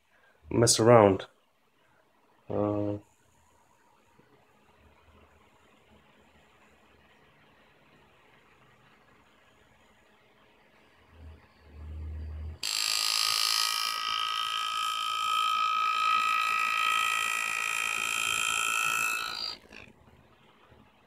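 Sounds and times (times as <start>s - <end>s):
low hum: 4.8s - 12.6s
pneumatic engraver buzzing: 12.6s - 19.9s.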